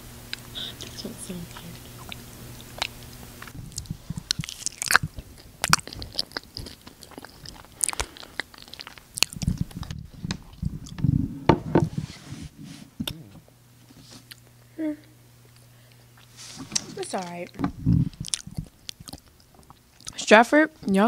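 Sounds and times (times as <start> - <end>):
close chewing and biting food: 1.6 - 11.1, 17.8 - 20.2
low bumps on microphone: 11.0 - 12.4.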